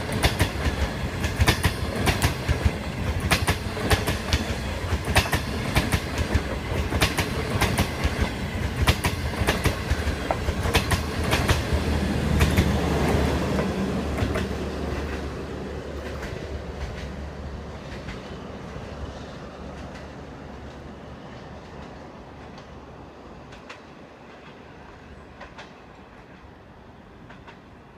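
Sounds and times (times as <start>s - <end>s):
train wheels clattering over rail joints: 0.0s - 15.2s
low train rumble: 0.0s - 27.9s.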